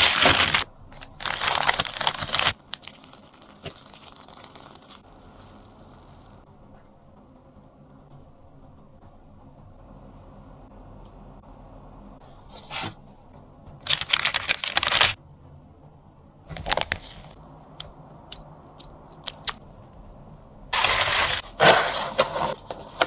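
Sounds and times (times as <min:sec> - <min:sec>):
crisp crunching and crackling: 0:00.0 - 0:06.2, 0:13.8 - 0:15.2, 0:16.5 - 0:20.0.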